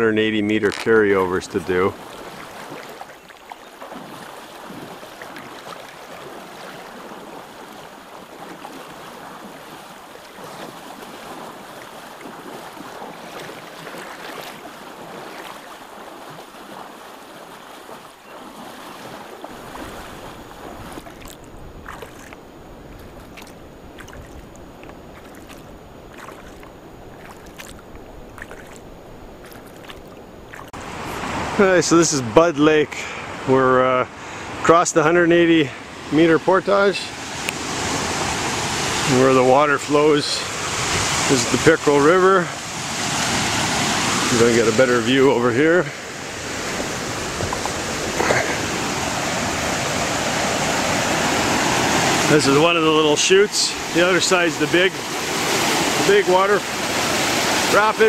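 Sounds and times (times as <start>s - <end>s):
rushing water: 0.0s - 58.0s
wind rumble on microphone: 19.0s - 31.5s, 46.3s - 49.7s.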